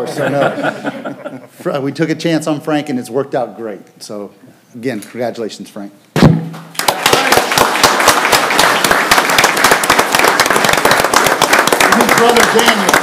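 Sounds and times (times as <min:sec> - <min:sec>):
crowd applauding: 0:06.7 - 0:13.0.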